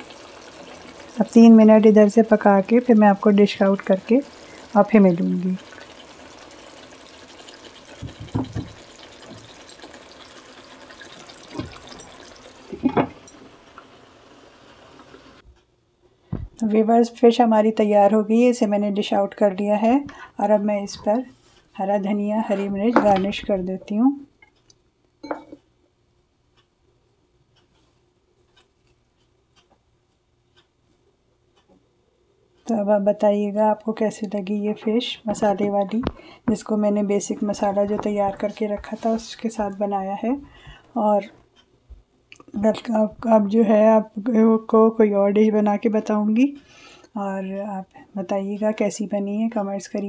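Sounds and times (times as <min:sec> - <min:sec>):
curry simmering and bubbling: 0:00.0 - 0:15.4
faint steady hum: 0:00.0 - 0:50.0
glass lid knocking on pan: 0:08.0 - 0:08.8.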